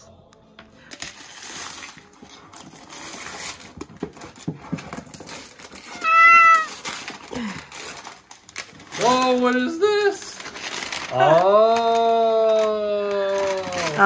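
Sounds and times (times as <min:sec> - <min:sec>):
wrapping paper rustling: 0:00.9 - 0:14.0
cat meowing: 0:05.9 - 0:06.8.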